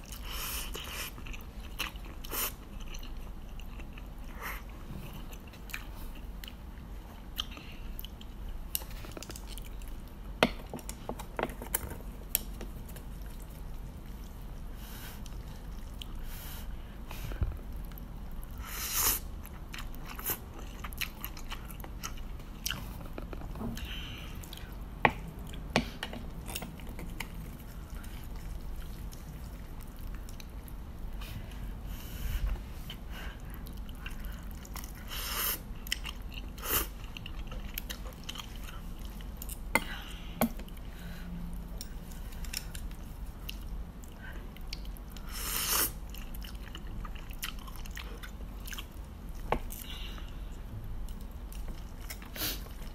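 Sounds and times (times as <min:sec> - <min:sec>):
chewing: 0:00.0 - 0:10.2, 0:17.1 - 0:25.7, 0:26.4 - 0:31.7, 0:32.8 - 0:40.9, 0:41.5 - 0:45.3, 0:45.9 - 0:50.4.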